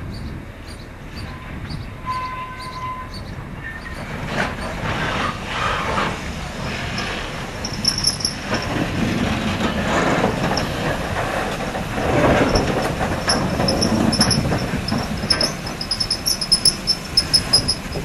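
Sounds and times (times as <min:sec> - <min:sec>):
steam locomotive wheels rumbling: 0:00.0 - 0:18.0
high squeaks: 0:06.9 - 0:09.0, 0:12.1 - 0:18.0
sharp metal clanks: 0:07.0 - 0:09.1, 0:12.1 - 0:18.0.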